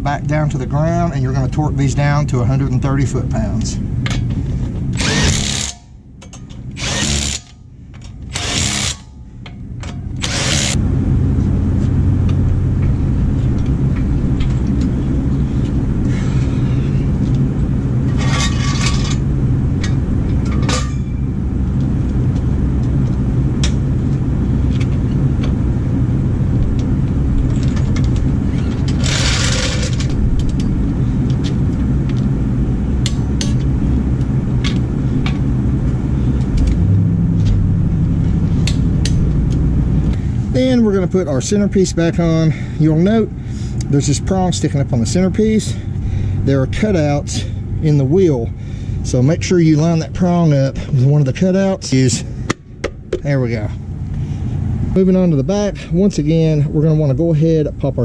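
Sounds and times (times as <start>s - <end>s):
steady low rumble: 0.0s - 58.0s
power tool bursts: 5.0s - 5.8s, 6.8s - 7.5s, 8.3s - 9.0s, 10.2s - 10.8s.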